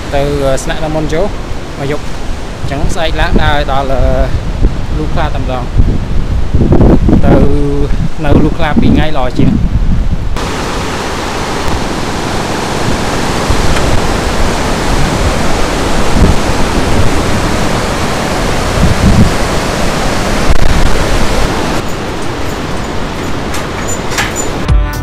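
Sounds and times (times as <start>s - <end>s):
wind buffeting microphone: 0.0s - 24.7s
river rapids roaring: 10.4s - 24.7s.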